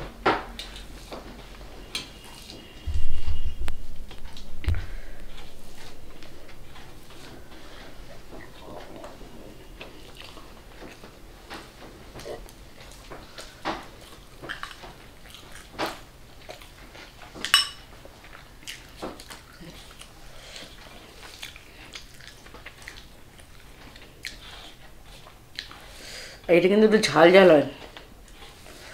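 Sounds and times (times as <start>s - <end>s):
chewing: 0.5s - 2.9s, 4.2s - 26.1s, 27.8s - 28.9s
spoon tapping metal plate: 17.5s - 17.8s.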